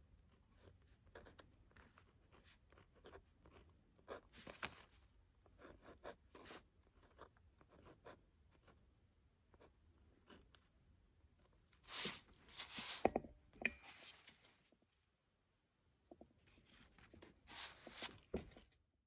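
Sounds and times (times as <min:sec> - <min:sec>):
pen scratching on paper: 0:00.6 - 0:04.6, 0:05.6 - 0:08.8.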